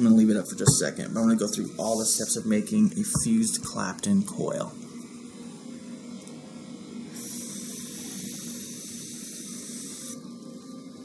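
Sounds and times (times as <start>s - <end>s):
vape coil hissing: 7.0s - 11.0s.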